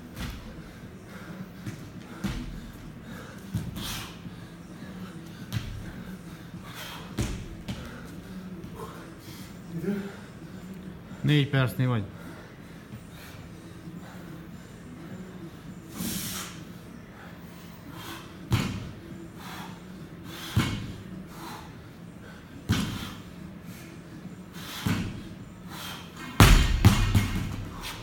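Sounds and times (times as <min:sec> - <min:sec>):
barbell thudding on a mat: 0:26.4 - 0:28.0.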